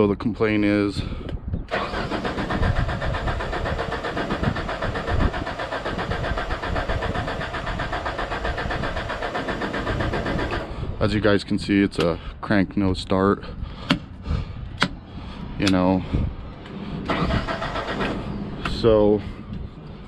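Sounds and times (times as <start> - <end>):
engine cranking without starting: 1.7 - 10.8, 17.0 - 18.4.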